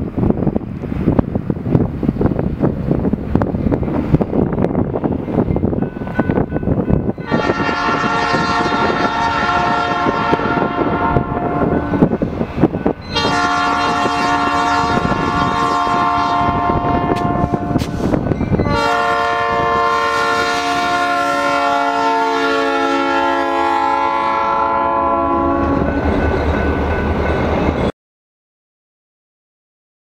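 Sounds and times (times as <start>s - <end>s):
locomotive air horn: 7.2s - 12.1s, 13.1s - 17.9s, 18.6s - 25.9s
wheels clattering on rail: 17.1s - 18.8s.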